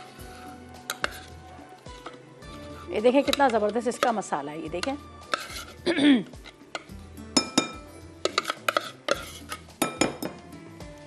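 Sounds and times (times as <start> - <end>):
sharp knocks on bowl: 6.8 - 8.4, 9.8 - 10.4.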